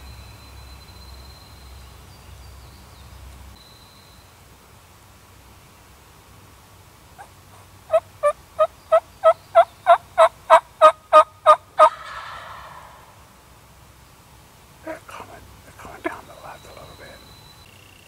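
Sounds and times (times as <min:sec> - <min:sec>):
wild turkey yelping: 0:07.9 - 0:13.4.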